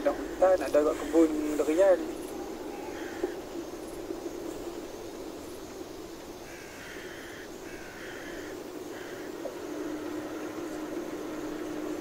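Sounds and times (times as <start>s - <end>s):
harsh rasping calls: 0.0s - 5.4s, 6.0s - 12.0s
car engine drone: 0.0s - 12.0s
road noise: 0.0s - 12.0s.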